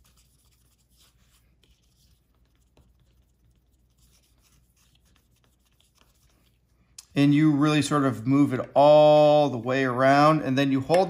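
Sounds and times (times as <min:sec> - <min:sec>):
cloth rubbing on screen: 0:00.0 - 0:06.9.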